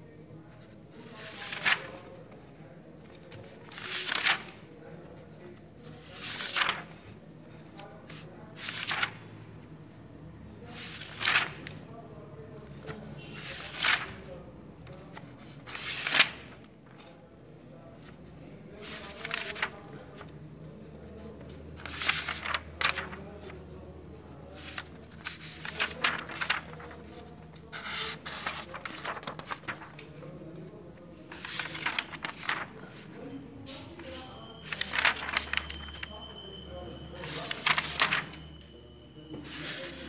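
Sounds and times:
book pages turning: 0.6 - 2.3, 3.0 - 4.7, 5.5 - 7.1, 8.1 - 9.2, 10.7 - 11.8, 12.8 - 14.3, 14.9 - 17.1, 18.8 - 20.3, 21.4 - 23.6, 24.5 - 30.3, 31.3 - 36.2, 37.2 - 38.4, 39.3 - 40.0.

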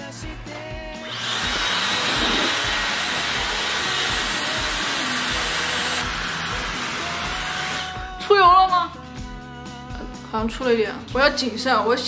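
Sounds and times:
hair dryer blowing: 1.0 - 7.9.

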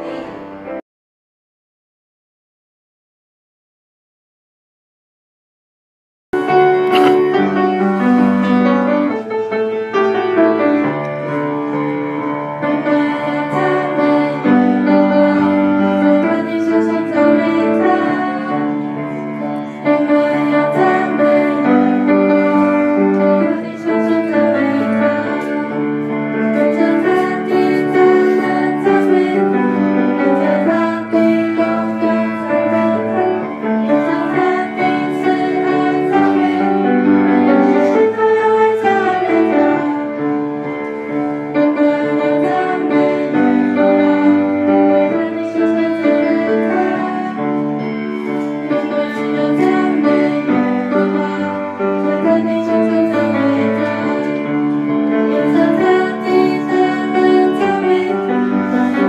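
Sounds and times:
grand piano: 0.0 - 0.8, 6.4 - 59.0
young voices singing: 6.7 - 7.6, 12.5 - 40.2, 41.5 - 59.0.

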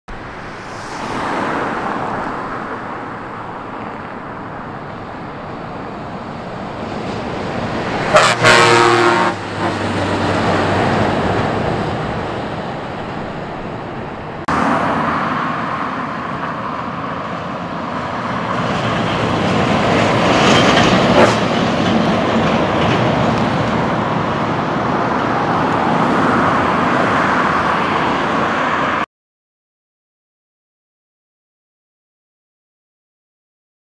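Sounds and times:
truck engine and road noise: 0.1 - 29.1
loud horn blast: 8.1 - 10.1.

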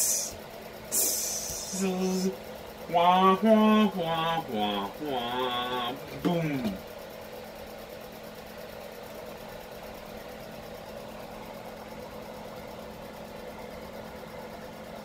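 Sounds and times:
small motor humming: 0.0 - 7.1.

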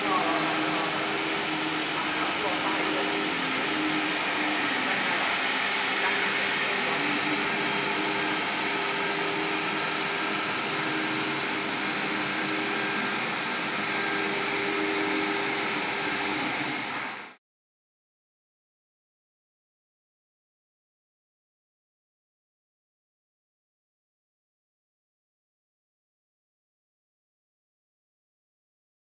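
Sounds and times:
drive motors humming: 0.0 - 17.3
router spindle hiss: 0.0 - 17.3.

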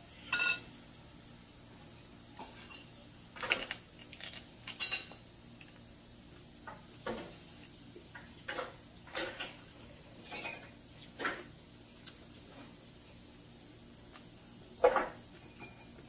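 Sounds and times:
dishes and cutlery clinking: 0.3 - 0.7, 2.4 - 5.2, 10.2 - 11.5, 14.8 - 16.0.

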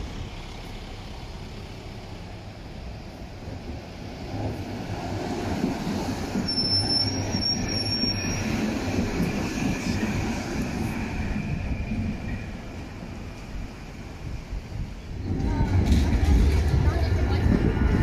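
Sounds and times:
tram rumbling past: 0.0 - 18.0
high wheel squeal: 6.3 - 10.1.

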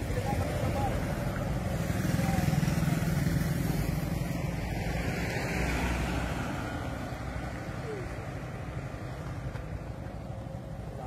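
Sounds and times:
car passing: 0.0 - 11.0.

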